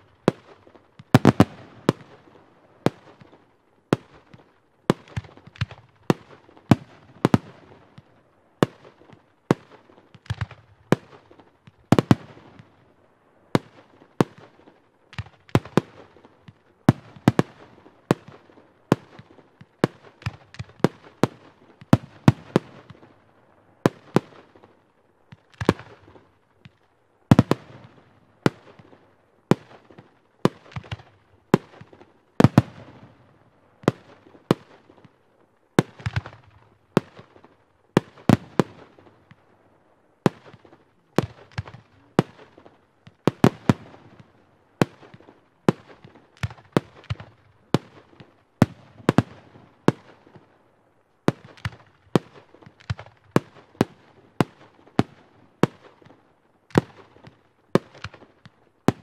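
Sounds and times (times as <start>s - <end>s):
fireworks bangs echoing: 0.0s - 3.4s, 35.8s - 39.5s, 40.2s - 50.4s.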